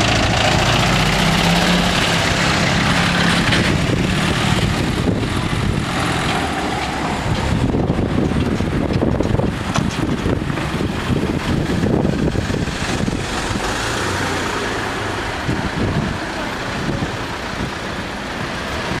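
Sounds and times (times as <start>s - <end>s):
cars driving slowly past: 0.0s - 19.0s.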